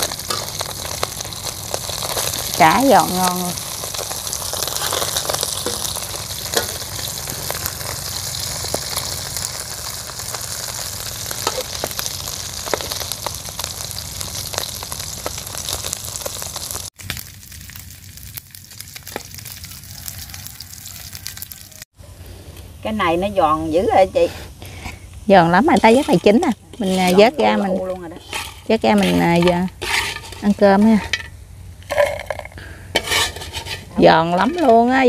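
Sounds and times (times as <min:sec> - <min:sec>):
fish sizzling in hot oil: 0:00.0 - 0:21.9, 0:22.8 - 0:32.3, 0:32.9 - 0:35.0.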